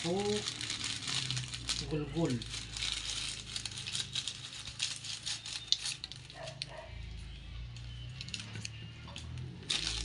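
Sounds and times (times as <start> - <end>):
seasonings clicking and rattling: 0.0 - 6.8, 9.6 - 10.0
crinkling: 0.0 - 6.9, 8.1 - 10.0.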